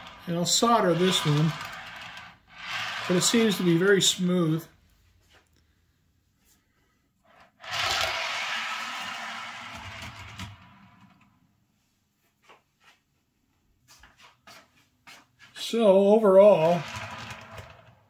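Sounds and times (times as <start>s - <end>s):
model train car rolling on track: 0.0s - 4.3s, 7.6s - 11.2s, 16.3s - 18.0s.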